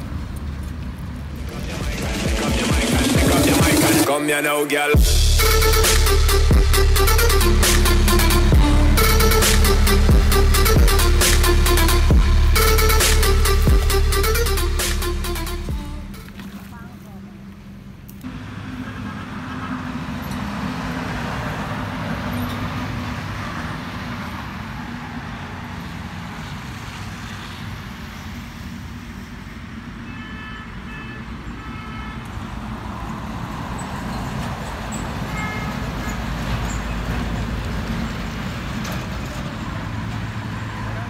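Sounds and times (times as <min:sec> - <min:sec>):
passing road traffic: 0:00.0 - 0:41.0
vehicle horn toots: 0:30.0 - 0:32.5, 0:35.2 - 0:36.3.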